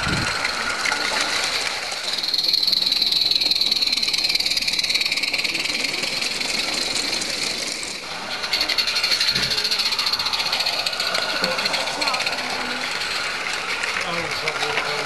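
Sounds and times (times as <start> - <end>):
model train wheels rattling on track: 0.0 - 15.0.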